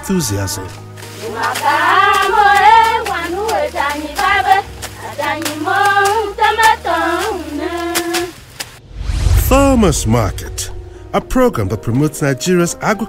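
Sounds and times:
voices singing: 0.0 - 8.8
hand-clapping: 1.6 - 8.7.

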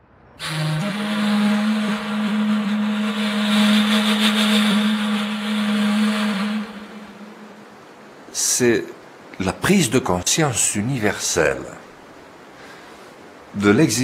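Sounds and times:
vehicle engine humming: 0.4 - 7.7.

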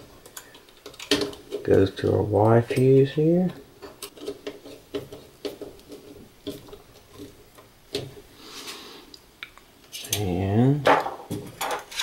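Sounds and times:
wire rustling: 0.0 - 9.2.

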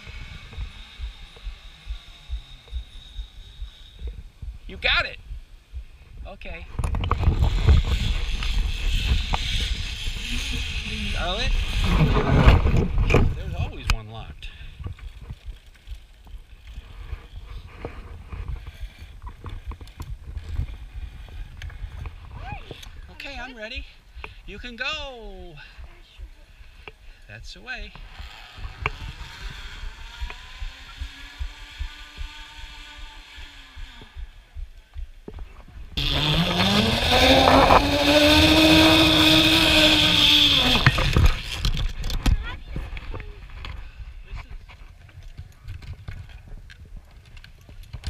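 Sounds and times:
zip-line pulleys whining on cable: 0.0 - 4.4, 7.0 - 13.0, 16.5 - 23.2, 27.9 - 34.6, 36.0 - 42.3
microphone handling rumble: 3.6 - 9.4, 11.6 - 15.6.

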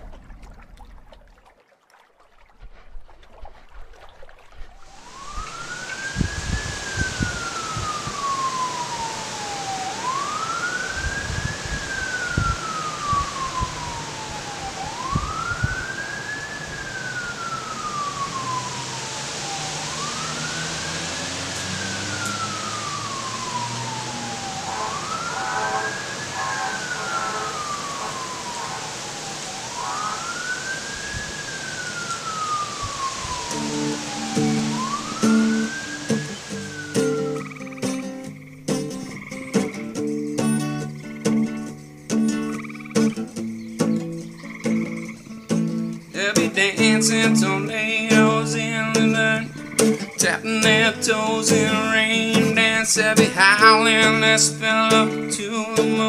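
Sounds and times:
siren wailing: 4.8 - 38.4, 46.1 - 56.0
steady hiss: 5.0 - 40.2.

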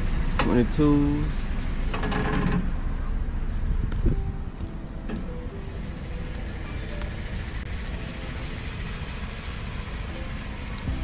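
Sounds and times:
car engine idling: 0.0 - 11.0
background music: 4.1 - 11.0.

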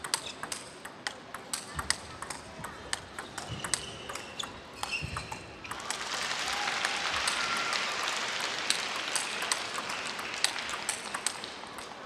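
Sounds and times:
table tennis ball clicking: 0.0 - 6.0, 8.7 - 12.0.

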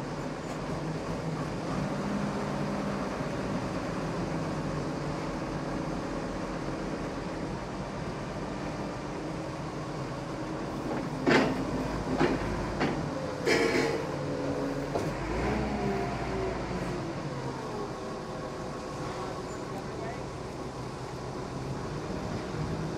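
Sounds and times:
forklift engine running: 0.0 - 22.9
metal clanks and knocks: 10.9 - 14.1.

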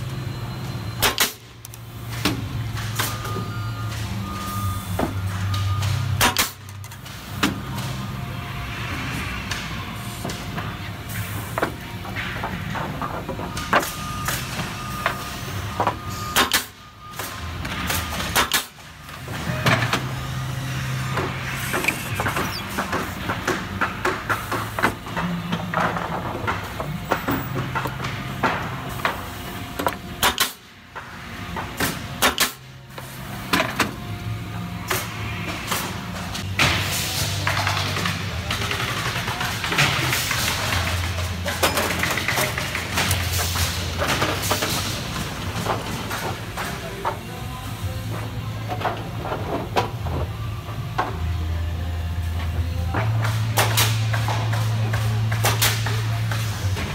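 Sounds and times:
machine motor hum: 19.0 - 23.8.

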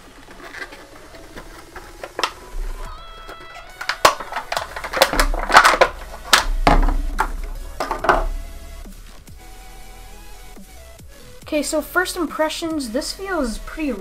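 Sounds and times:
plastic packaging crinkling: 0.0 - 8.4.

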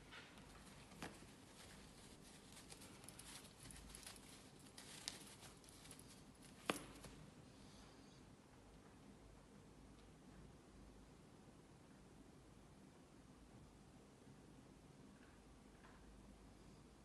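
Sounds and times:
glove rustling onto hand: 0.1 - 7.3.

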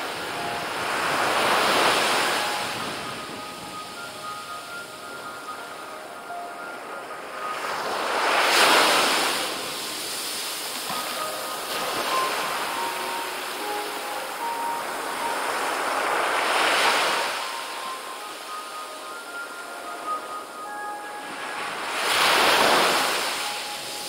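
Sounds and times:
small waves breaking on beach: 7.3 - 20.2, 21.2 - 24.0.

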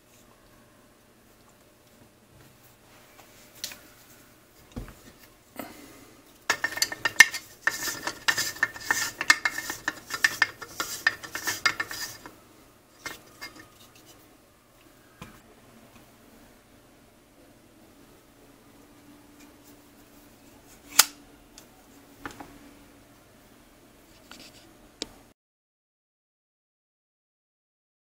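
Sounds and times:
cleaning tool scraping rattle: 6.5 - 12.3, 13.0 - 13.8.

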